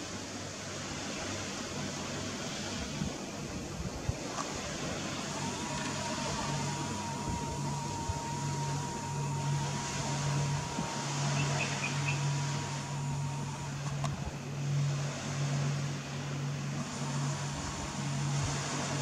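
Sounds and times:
low machine hum: 0.0 - 19.0
thin high tone: 4.8 - 14.8.

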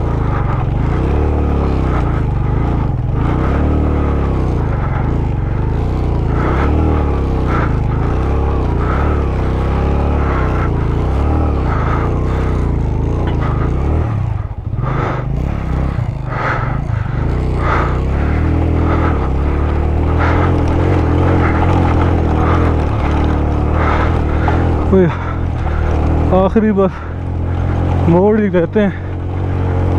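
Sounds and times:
motorcycle engine revving: 0.0 - 29.9.

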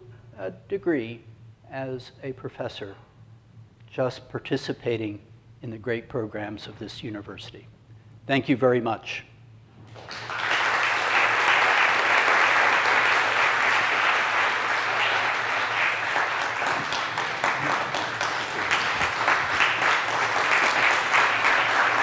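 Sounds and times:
audience applauding: 9.9 - 22.0.

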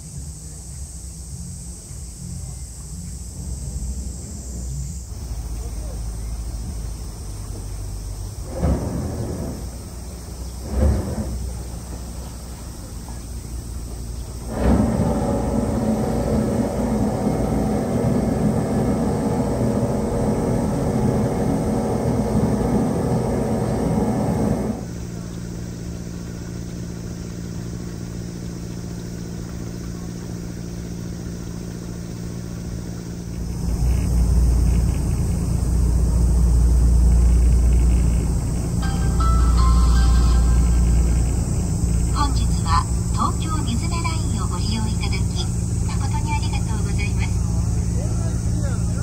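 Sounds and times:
boat engine drone: 0.0 - 49.0
boat engine low hum: 0.0 - 49.0
deep rumble of boat moving: 0.0 - 49.0.

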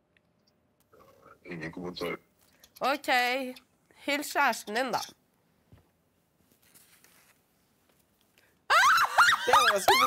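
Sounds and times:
people shrieking with laughter: 8.7 - 10.0.

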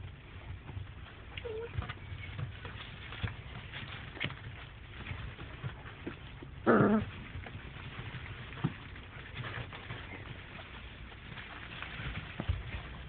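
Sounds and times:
faint ticks and patter: 0.0 - 13.0
puppy yelping: 1.4 - 2.3, 6.6 - 7.2.

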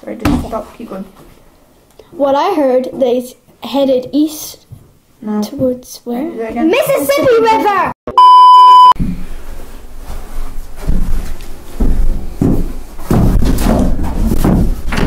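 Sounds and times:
test tone beep: 8.1 - 9.0
thumps and knocks: 10.8 - 15.0.

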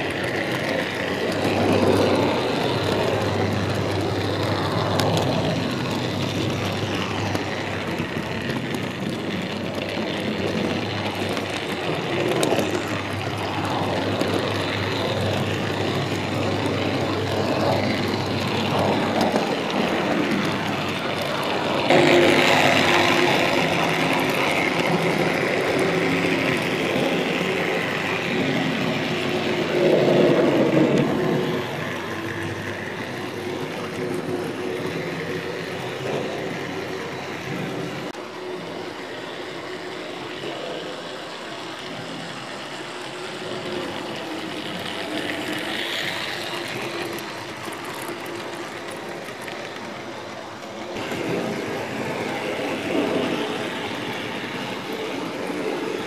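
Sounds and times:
wheels rumbling on track: 0.0 - 56.0.

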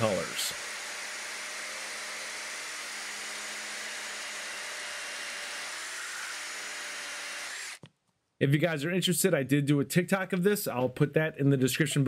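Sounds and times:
chainsaw chain cutting log: 0.0 - 7.8
power drill motor humming: 0.0 - 7.8.

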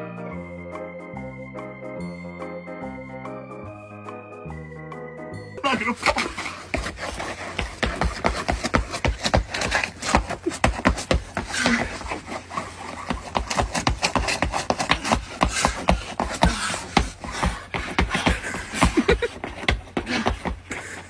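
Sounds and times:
shoes scuffing on icy concrete: 5.8 - 20.2.

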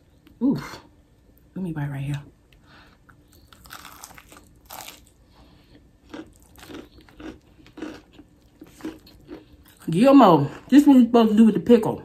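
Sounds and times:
crunchy biting and chewing: 3.1 - 9.9.

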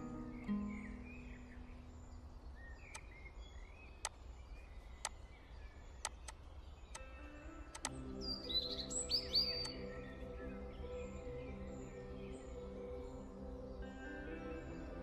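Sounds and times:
background music: 0.0 - 1.8, 7.0 - 15.0
faint bird chirps: 0.0 - 15.0
low steady noise: 0.0 - 15.0
sharp clicks: 2.9 - 3.2, 4.0 - 4.2, 5.0 - 5.2, 6.0 - 8.0.

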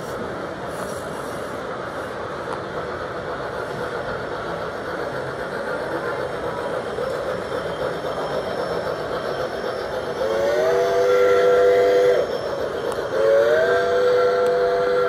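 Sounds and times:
model trains rolling on track: 0.0 - 15.0
model train whistle: 10.1 - 15.0.

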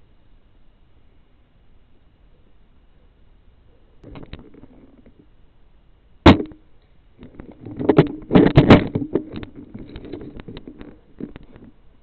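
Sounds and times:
cluster of knocks: 6.3 - 6.6, 7.2 - 11.7
sharp crack: 6.3 - 6.6
rustling on camera microphone: 7.2 - 11.9.

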